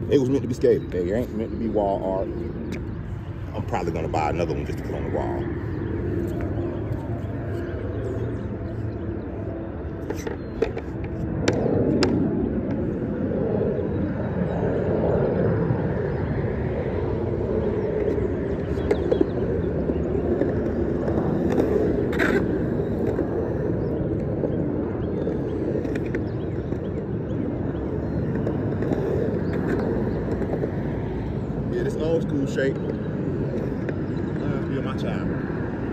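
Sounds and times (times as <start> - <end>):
skateboard wheels rolling on concrete: 0.0 - 13.9, 15.9 - 35.9
skateboard clacks: 10.0 - 12.8, 18.0 - 24.3, 25.1 - 27.1, 28.2 - 31.3.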